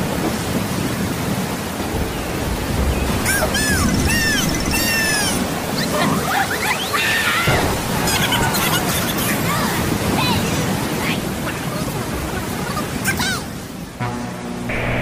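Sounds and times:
high squeaky chirping: 3.2s - 7.3s.

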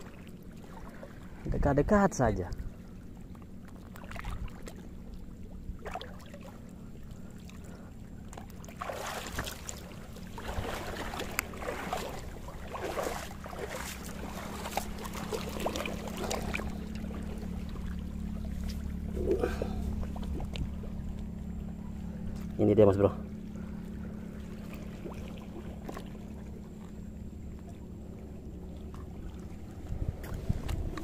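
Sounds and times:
steady low hum: 0.0s - 31.0s
wet splashing: 8.4s - 20.7s.

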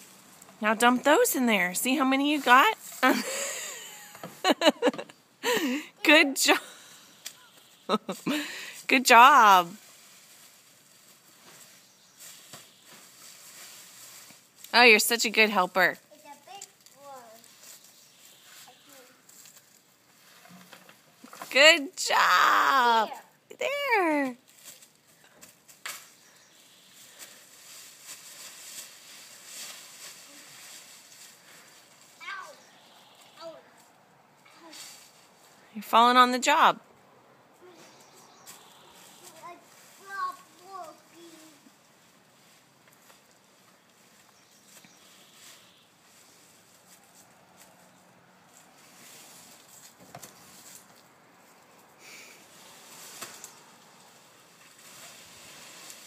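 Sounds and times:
sharp leaf crackles: 0.0s - 0.6s, 6.7s - 8.9s, 9.6s - 21.4s, 24.2s - 35.7s, 37.6s - 56.0s
dry leaves rustling: 0.0s - 4.8s, 6.6s - 35.9s, 37.5s - 56.0s.

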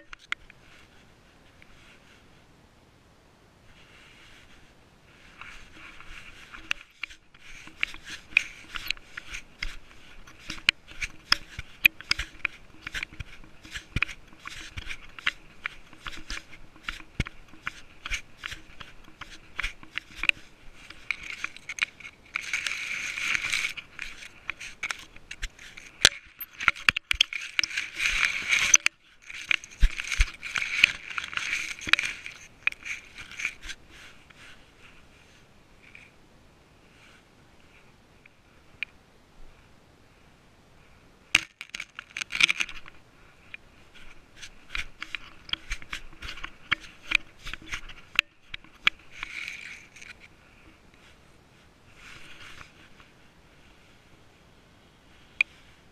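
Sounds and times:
grass and leaves brushing: 3.6s - 36.1s, 41.4s - 55.9s
camera mount rustling and knocking: 5.4s - 34.5s, 41.3s - 51.1s.

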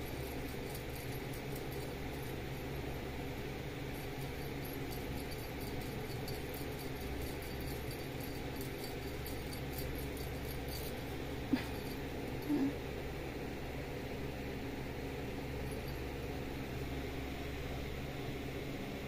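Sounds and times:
low room hum: 0.0s - 19.0s
kitten mewing: 11.5s - 12.8s.

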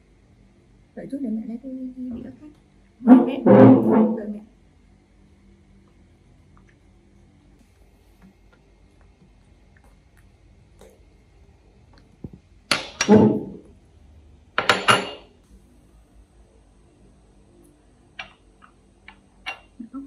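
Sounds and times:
ceramic dishes clattering on glass: 14.6s - 15.3s.

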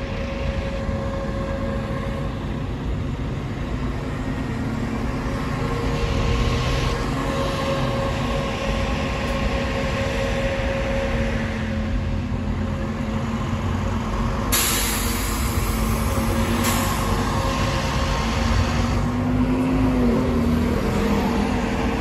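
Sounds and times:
bus engine whining: 0.0s - 22.0s
air hiss: 14.5s - 17.9s.

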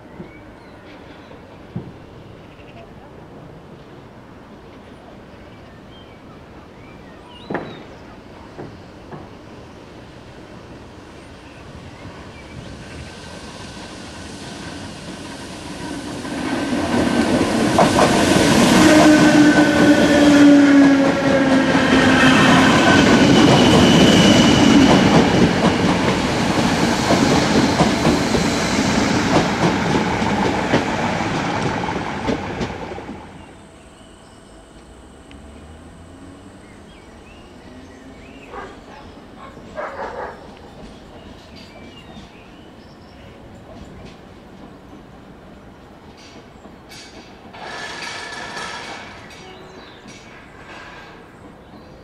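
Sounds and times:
train wheels clattering over rail joints: 16.2s - 33.2s, 46.1s - 52.0s
train whine falling in pitch: 16.8s - 39.5s.

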